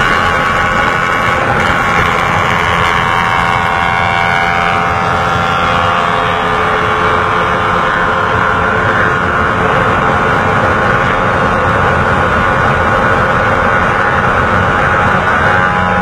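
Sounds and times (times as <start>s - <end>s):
motorcycle engine running hard: 0.0s - 16.0s
wind rush on microphone: 0.0s - 16.0s.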